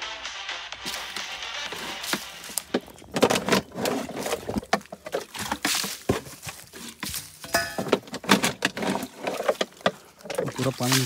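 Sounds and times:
water splashing and sloshing: 0.9s - 11.0s
bottle knocking against stone: 7.4s - 8.0s.

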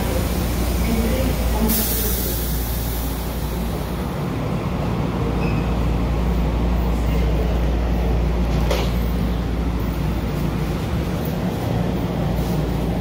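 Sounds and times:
low hum of a transit car: 0.0s - 13.0s.

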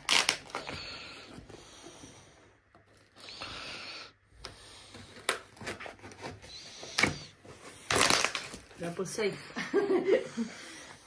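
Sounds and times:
cardboard handling noise: 4.8s - 9.0s.

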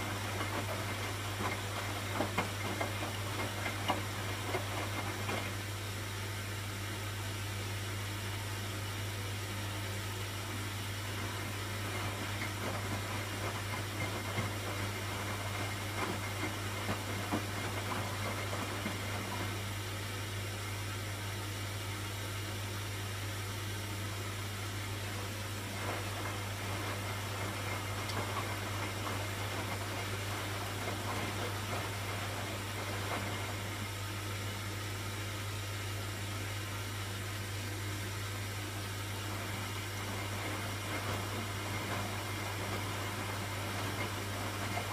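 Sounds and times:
washing machine motor hum: 0.0s - 44.9s.

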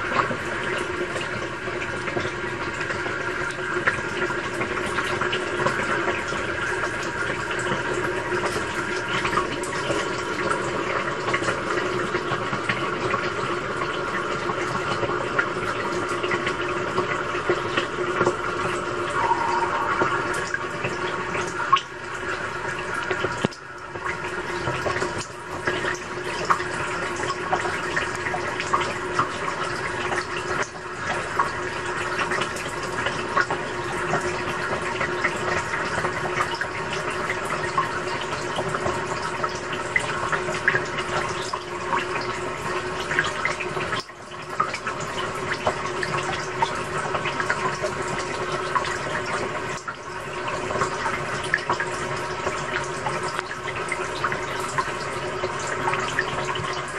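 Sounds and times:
water rushing into washing machine: 0.0s - 56.9s
steady hum: 18.5s - 24.4s.

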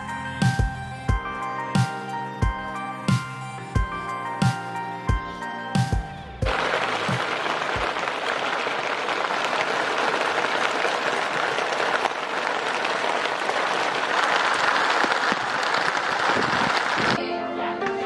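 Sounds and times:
heavy rain on a boat deck: 6.5s - 9.0s.

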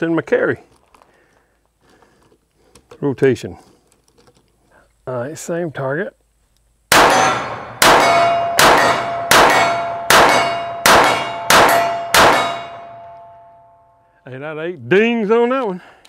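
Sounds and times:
pistol shots: 6.9s - 13.2s
steel target ringing: 6.9s - 14.0s.

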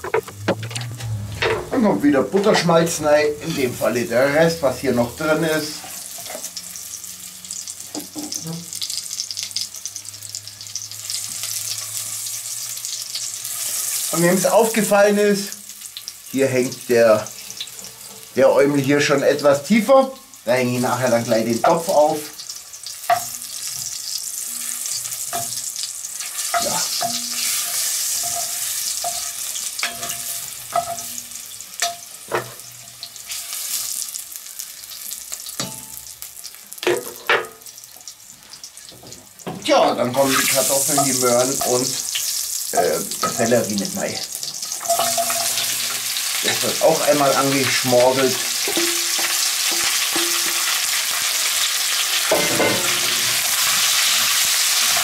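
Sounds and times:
butter sizzling in a pot: 2.2s - 55.0s
steel bowl clinking: 44.8s - 46.0s, 48.6s - 50.8s.

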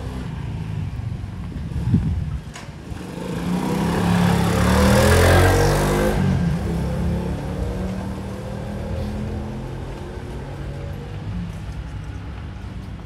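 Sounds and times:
motor scooter passing: 2.8s - 11.0s.

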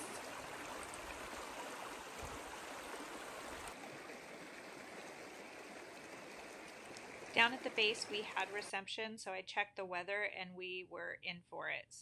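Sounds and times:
creek water rushing over stones: 0.0s - 8.6s.

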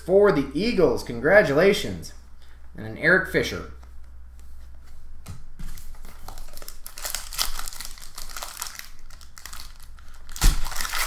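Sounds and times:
foil wrapper crinkling: 5.8s - 11.0s.

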